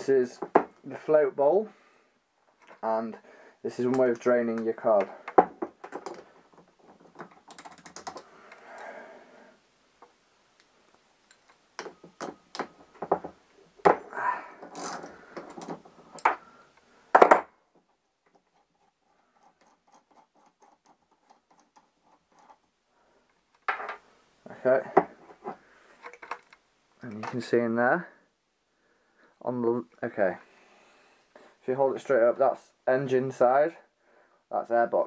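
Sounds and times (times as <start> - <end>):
clicks and taps of small parts: 7.0 - 8.6.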